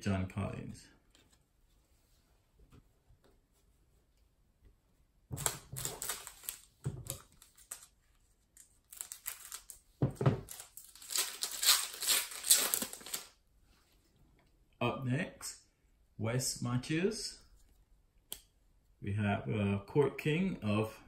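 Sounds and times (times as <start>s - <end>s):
plastic wrapper crinkling: 5.4s - 9.8s, 10.4s - 13.4s.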